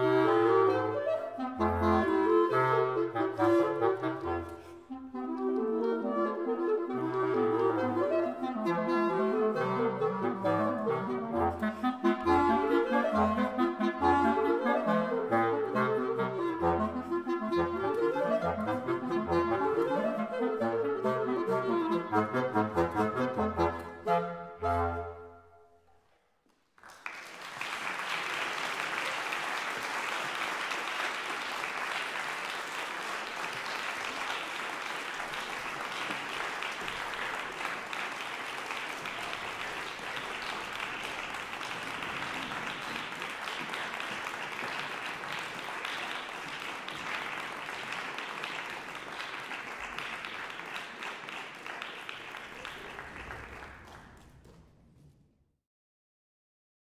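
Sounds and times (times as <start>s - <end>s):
audience applauding: 26.5s - 55.1s.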